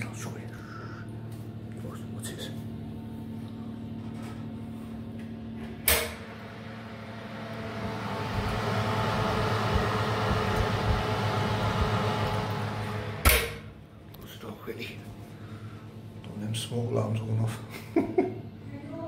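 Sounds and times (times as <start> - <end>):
electric oven humming: 0.0 - 19.0
rushing noise from hot oven: 4.0 - 13.8
oven switch click: 5.8 - 6.3, 13.2 - 13.6.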